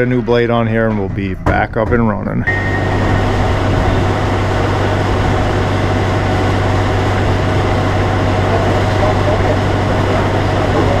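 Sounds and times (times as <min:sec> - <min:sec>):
sawmill machinery engine running: 0:02.4 - 0:11.0.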